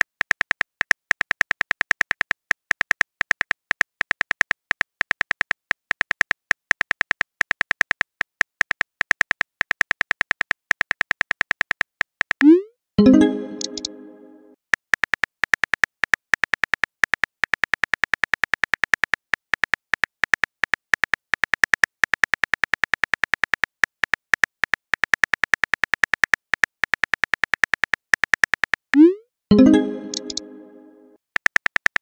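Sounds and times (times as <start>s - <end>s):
short synth chime: 13.0s - 14.6s, 29.5s - 31.2s.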